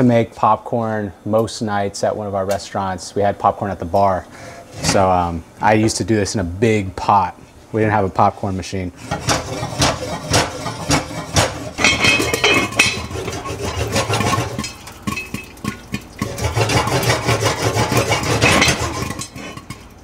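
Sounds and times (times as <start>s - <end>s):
fat sizzling: 9.0s - 20.0s
pot and lid clattering: 9.1s - 20.0s
popcorn kernels popping: 14.2s - 16.8s.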